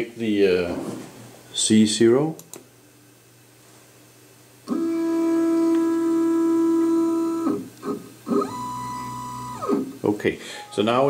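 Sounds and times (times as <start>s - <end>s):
stepper motors whining: 4.7s - 10.0s.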